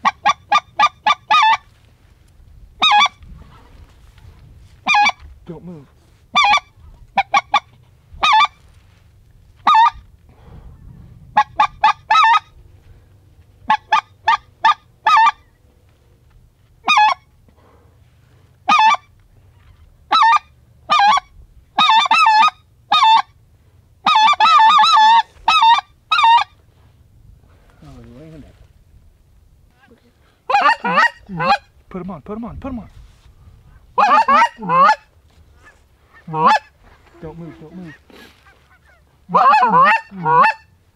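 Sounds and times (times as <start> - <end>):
goose honking: 0.0 - 1.7, 2.8 - 3.6, 4.8 - 5.3, 6.3 - 8.7, 9.6 - 10.0, 11.4 - 12.6, 13.6 - 15.6, 16.8 - 17.3, 18.6 - 23.4, 24.0 - 26.6, 29.8 - 31.7, 33.8 - 40.9.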